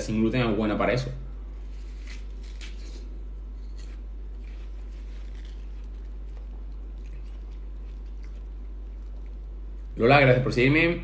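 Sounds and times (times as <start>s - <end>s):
low hum: 0.0s - 11.0s
watermelon crunching and chewing: 1.4s - 10.1s.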